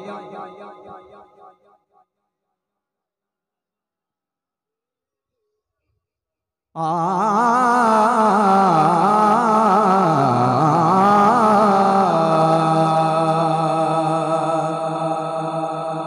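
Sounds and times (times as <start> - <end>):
man singing into a microphone: 0.0 - 1.3, 6.8 - 16.0.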